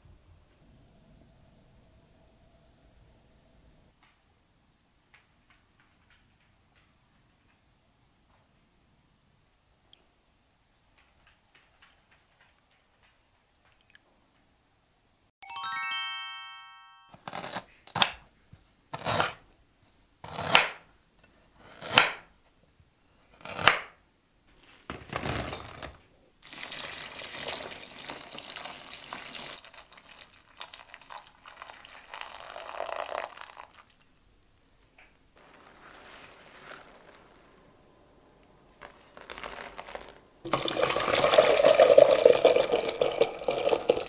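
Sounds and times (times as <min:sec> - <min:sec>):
chime ringing: 0:15.4 - 0:17.2
dried fruit rattling into colander: 0:24.5 - 0:33.0, 0:35.4 - 0:37.8, 0:38.7 - 0:43.2
tap water running: 0:25.4 - 0:34.1, 0:40.5 - 0:44.0.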